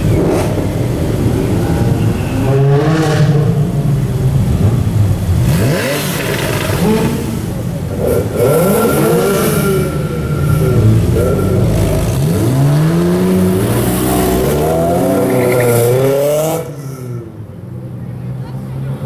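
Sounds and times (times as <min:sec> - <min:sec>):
sports car engines revving: 0:00.0 - 0:19.0.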